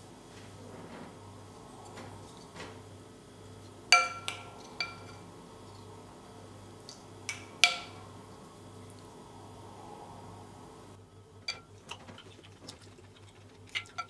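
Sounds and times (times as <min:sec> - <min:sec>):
soft scraping: 0:00.3 - 0:02.8
spoon clinking ceramic bowl: 0:04.0 - 0:05.2.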